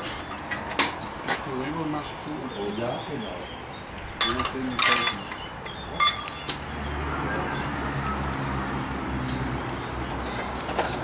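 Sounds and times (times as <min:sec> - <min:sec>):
sharp metallic clink: 0:04.2 - 0:05.2, 0:06.0 - 0:06.5.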